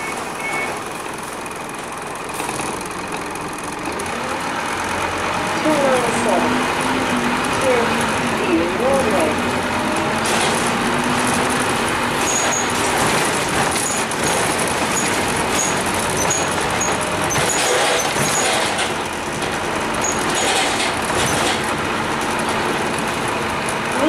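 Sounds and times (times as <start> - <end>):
bus diesel engine: 0.0 - 24.0
road noise: 0.0 - 24.0
short high squeaks: 12.2 - 12.8.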